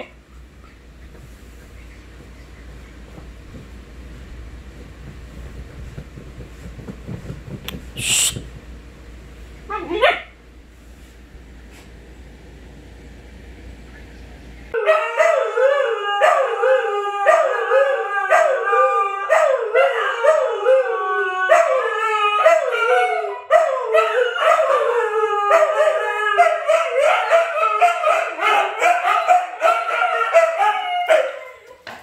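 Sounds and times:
huskies howling: 14.7s - 31.9s.

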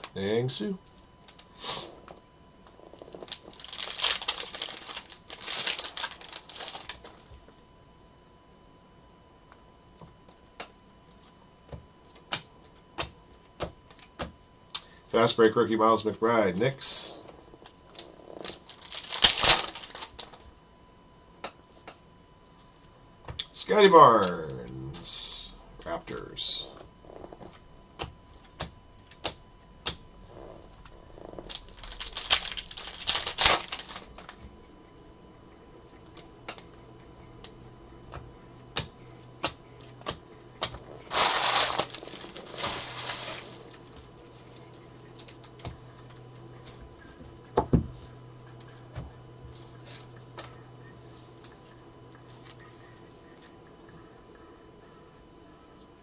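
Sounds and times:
cards rustling: 3.1s - 7.3s, 18.0s - 20.4s, 30.7s - 34.5s, 39.4s - 46.8s.

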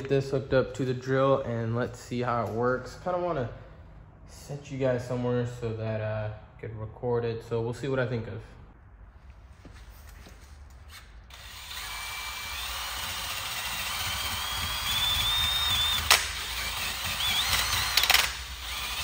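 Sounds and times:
drill whine: 11.3s - 19.0s
sharp clicks: 13.4s - 18.8s.

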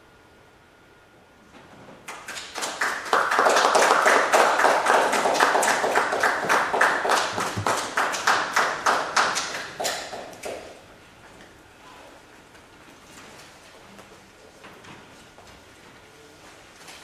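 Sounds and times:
audience applause: 2.2s - 10.8s.

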